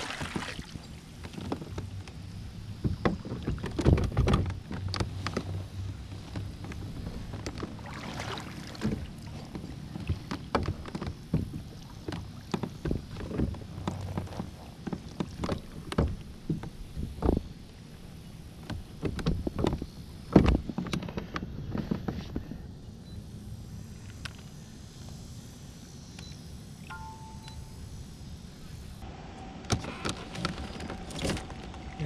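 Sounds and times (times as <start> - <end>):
steady low hum: 0.0 - 32.0
fishing gear knocking and rattling: 8.8 - 17.4.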